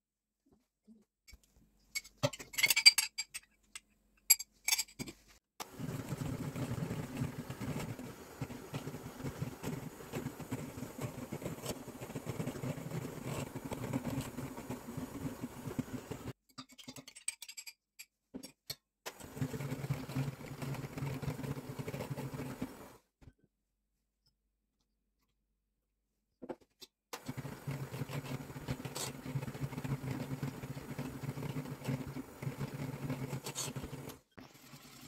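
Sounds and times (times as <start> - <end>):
electric hand mixer whirring: 5.6 - 16.3.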